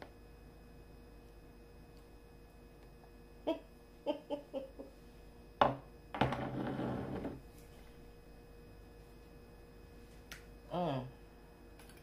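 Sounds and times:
glass bottle knocks: 0:05.6 - 0:06.4.

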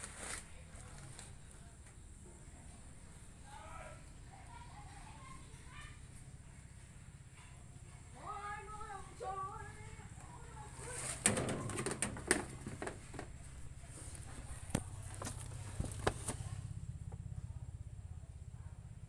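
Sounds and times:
sharp clicks and knocks: 0:11.1 - 0:13.4.

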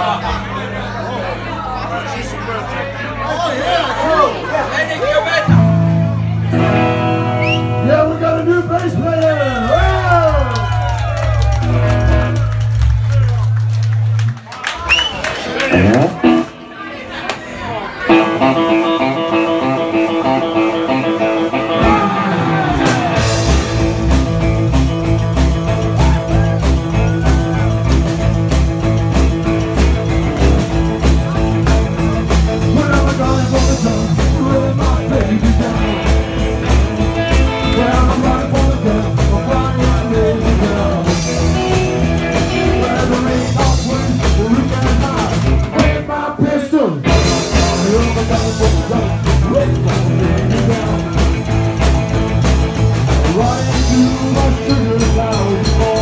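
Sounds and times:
rock and roll band playing: 0:05.4 - 0:16.7, 0:18.0 - 0:56.0
man singing: 0:32.6 - 0:51.9, 0:53.1 - 0:56.0.

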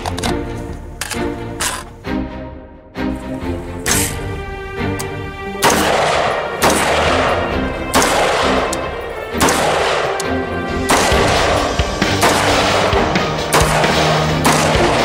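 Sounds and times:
background music: 0:00.0 - 0:15.0
rifle shots with echo: 0:05.6 - 0:15.0.

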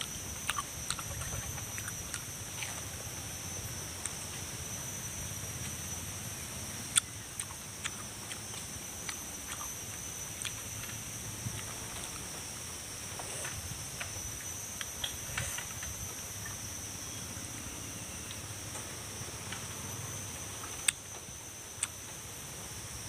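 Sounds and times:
chewing pineapple: 0:00.0 - 0:03.2, 0:06.9 - 0:12.3
high insect drone: 0:00.0 - 0:23.0.

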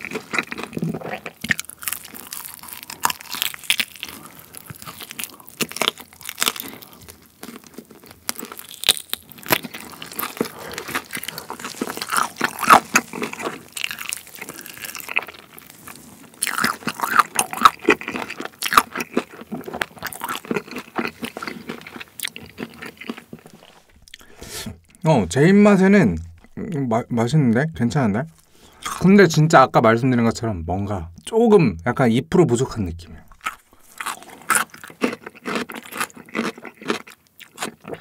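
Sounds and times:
crunching of fried coating: 0:00.0 - 0:24.3, 0:33.2 - 0:38.0
chewing fried chicken: 0:00.0 - 0:25.0, 0:33.2 - 0:38.0.

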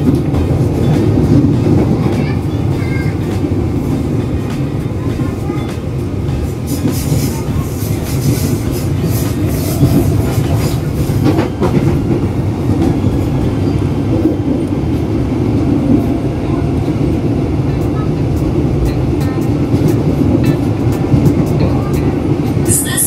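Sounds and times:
train rumbling: 0:00.0 - 0:23.0
train wheels clacking on rails: 0:00.0 - 0:23.0.

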